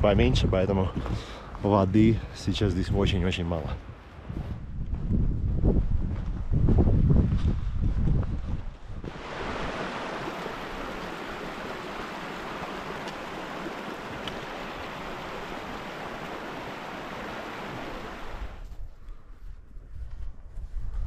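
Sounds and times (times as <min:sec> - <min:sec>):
water rushing: 0:09.1 - 0:18.6.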